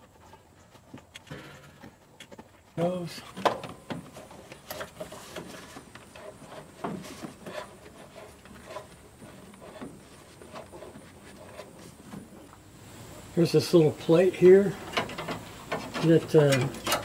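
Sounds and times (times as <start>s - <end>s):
pipe rubbing: 4.1s - 12.5s.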